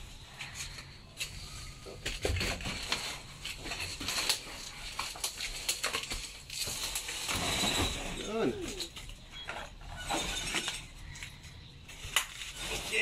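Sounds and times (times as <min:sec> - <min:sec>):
leaves and branches rustling: 0:10.6 - 0:13.0.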